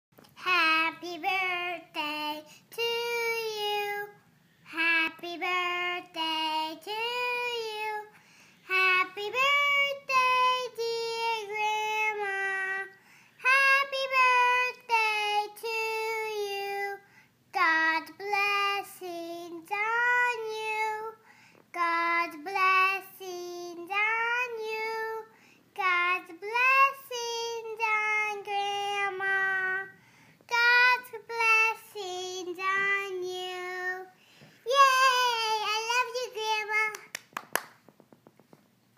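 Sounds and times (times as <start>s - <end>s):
girl breathing: 8.1s - 8.7s, 13.0s - 13.4s, 17.0s - 17.4s, 21.2s - 21.7s, 25.3s - 25.7s, 29.9s - 30.5s, 34.1s - 34.7s
girl singing solo: 28.6s - 37.1s.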